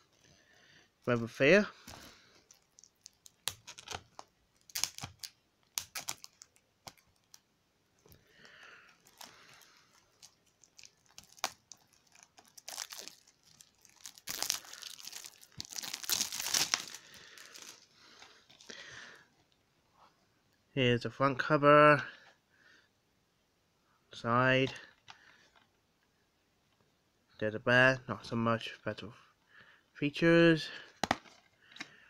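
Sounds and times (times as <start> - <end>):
plastic wrap crinkling and tearing: 1.1 - 7.4, 8.0 - 18.8
knife slitting plastic wrap: 10.2 - 17.7.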